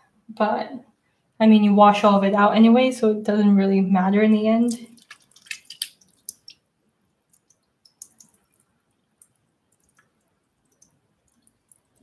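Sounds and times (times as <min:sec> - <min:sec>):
water dripping: 0:04.6 - 0:12.0.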